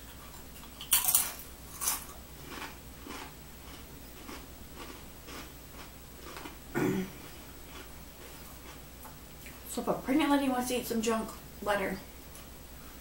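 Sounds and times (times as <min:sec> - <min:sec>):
chewing crunches: 0:00.0 - 0:06.6, 0:07.2 - 0:08.8
crisp chip crunches: 0:00.1 - 0:06.6.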